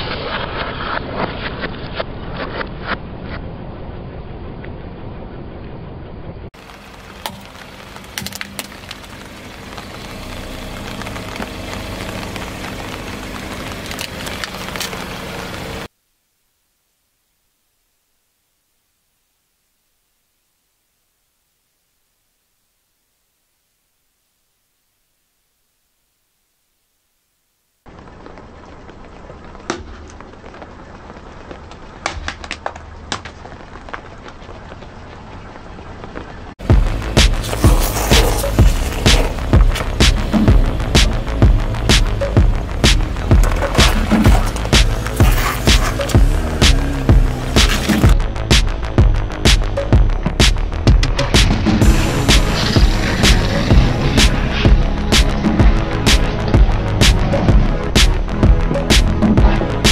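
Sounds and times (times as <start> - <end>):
car running and tyre noise: 0.0 - 15.9, 27.9 - 59.9
plastic toys cracking under tyre: 7.0 - 9.9, 10.9 - 15.2, 31.6 - 34.4
steady low rumble: 36.6 - 59.9.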